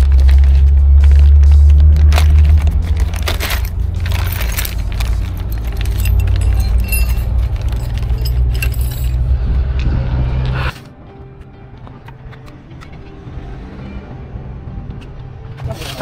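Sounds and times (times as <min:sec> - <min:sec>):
metal parts clinking: 0:02.0 - 0:09.4.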